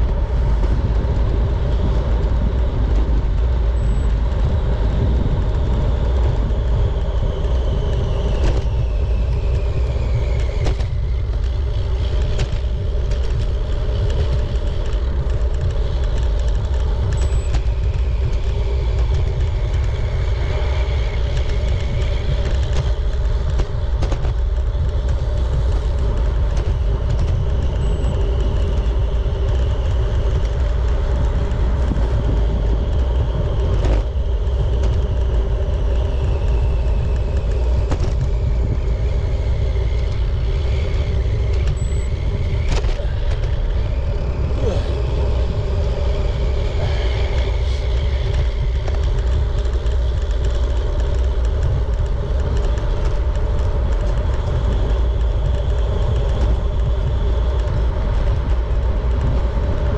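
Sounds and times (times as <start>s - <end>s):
bicycle tyre road noise: 0.0s - 59.9s
wind buffeting microphone: 0.0s - 59.9s
faint high whistling tones: 27.6s - 29.9s, 36.1s - 48.8s.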